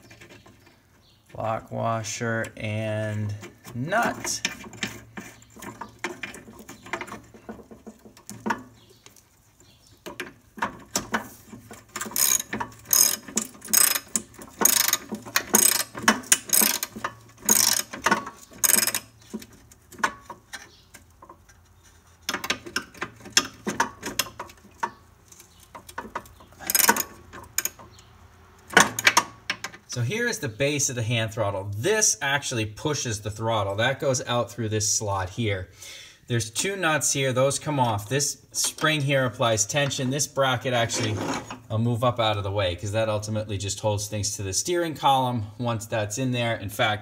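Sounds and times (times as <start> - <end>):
handling nut and washer: 0.0 - 31.8, 36.5 - 42.3
ratchet wrench clicking: 11.7 - 19.1, 25.8 - 27.8.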